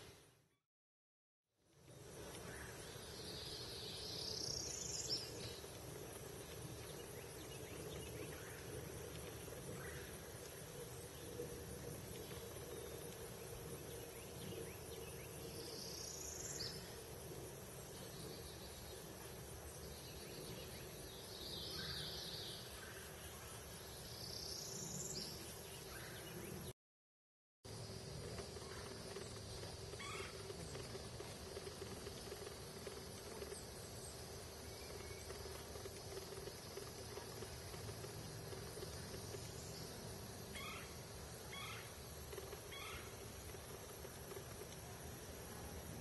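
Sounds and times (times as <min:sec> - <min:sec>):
steady outdoor hiss: 0:00.0 - 0:00.6, 0:01.6 - 0:26.7, 0:27.7 - 0:46.0.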